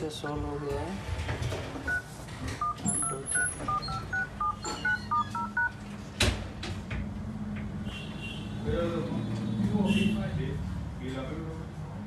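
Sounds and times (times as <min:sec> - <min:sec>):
phone keypad two-note beeps: 0:02.6 - 0:05.7.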